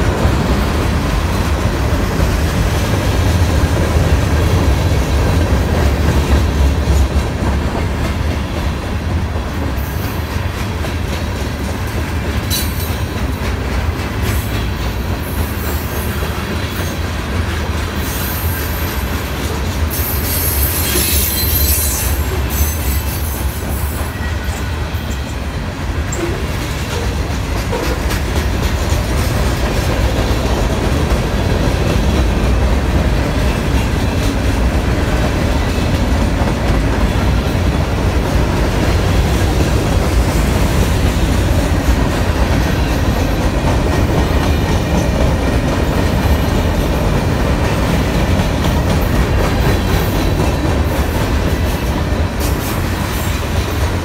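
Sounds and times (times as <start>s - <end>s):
train wheels rumbling on rail: 0.0s - 54.0s
high-pitched wheel squealing: 20.0s - 23.3s.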